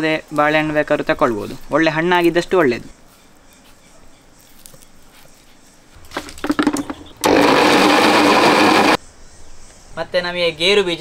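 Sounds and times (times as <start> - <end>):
electric mixer grinder running: 6.5 - 9.0.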